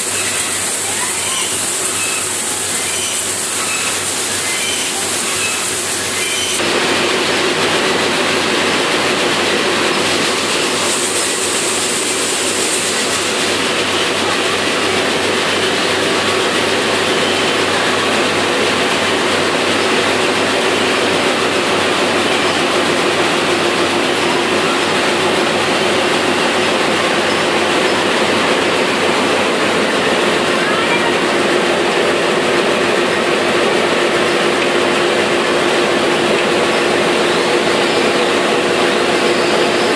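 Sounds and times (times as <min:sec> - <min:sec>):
seed cleaner machine running: 0:00.0 - 0:39.9
steady machine hum: 0:00.0 - 0:39.9.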